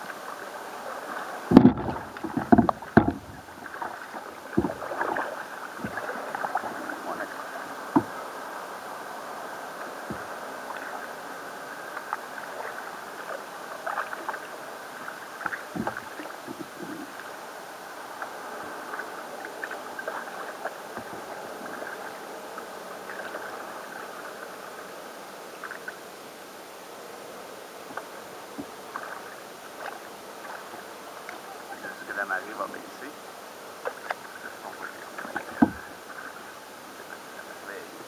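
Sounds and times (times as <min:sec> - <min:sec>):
small ticks and splashes: 0:00.0 - 0:08.3, 0:11.8 - 0:17.4, 0:18.0 - 0:24.7, 0:25.6 - 0:26.1, 0:27.8 - 0:31.5, 0:33.7 - 0:37.6
kayak paddle dipping and pulling: 0:00.0 - 0:38.0
steady wash of water: 0:00.0 - 0:38.0.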